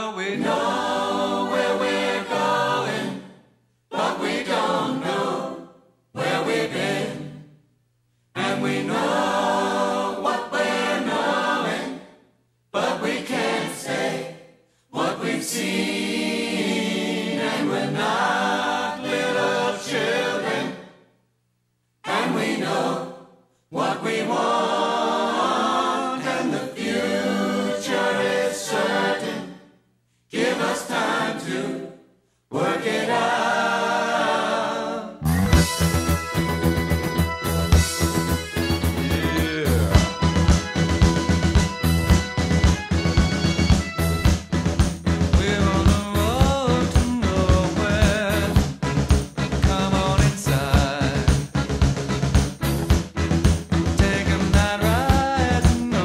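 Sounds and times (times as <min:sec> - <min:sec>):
group of voices singing: 0:00.0 - 0:07.6, 0:08.4 - 0:21.0, 0:22.0 - 0:35.9, 0:45.4 - 0:48.7, 0:49.6 - 0:51.4, 0:53.9 - 0:56.0.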